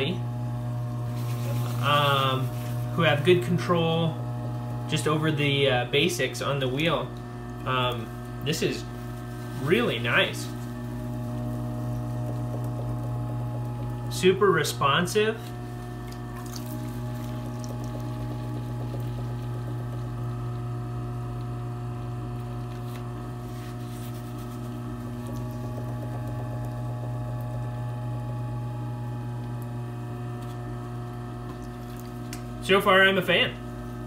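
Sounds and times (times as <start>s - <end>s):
pottery wheel motor hum: 0.0s - 34.0s.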